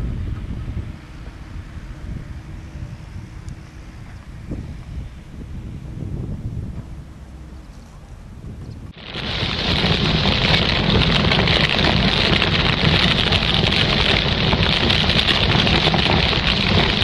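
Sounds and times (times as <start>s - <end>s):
wind on microphone: 0.0s - 17.0s
fire crackling: 8.9s - 17.0s.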